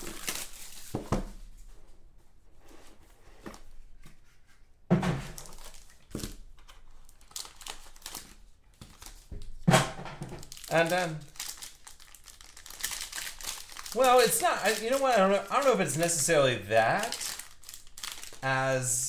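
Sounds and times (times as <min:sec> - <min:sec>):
cardboard rustling and crinkling: 0:02.6 - 0:09.6, 0:10.3 - 0:15.3.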